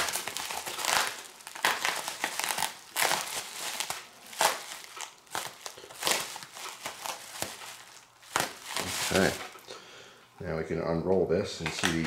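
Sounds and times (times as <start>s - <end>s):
bubble wrap crinkling: 0.0s - 9.6s.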